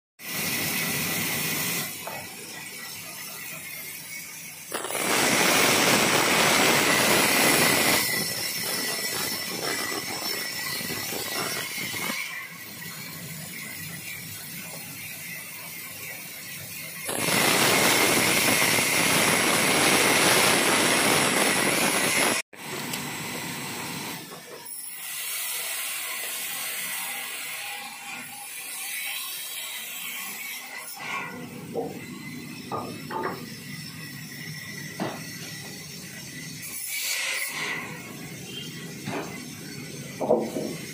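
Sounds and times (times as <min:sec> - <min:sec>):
band saw cutting logs: 0:04.6 - 0:14.8, 0:36.6 - 0:39.4.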